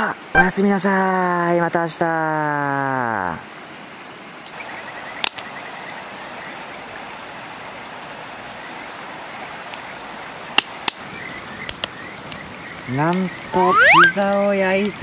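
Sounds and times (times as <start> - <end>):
wood fire crackle: 4.4 - 15.0
fire pops: 10.6 - 15.0.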